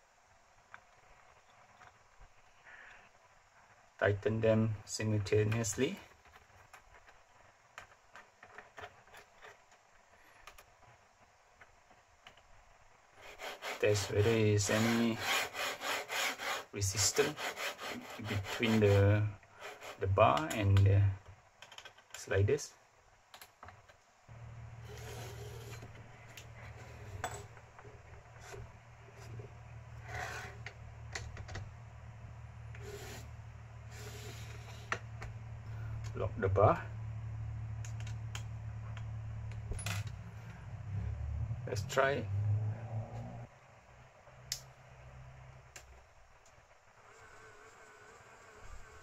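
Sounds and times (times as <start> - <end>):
steady low hum: 24.2 - 45.8.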